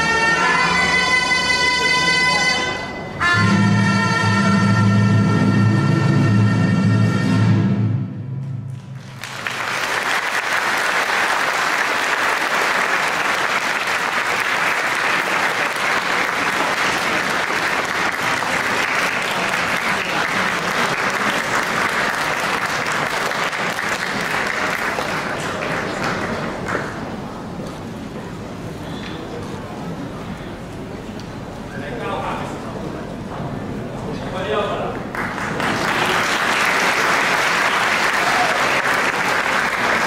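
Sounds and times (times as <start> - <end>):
audience applauding: 8.8 - 27.3, 35.1 - 40.0.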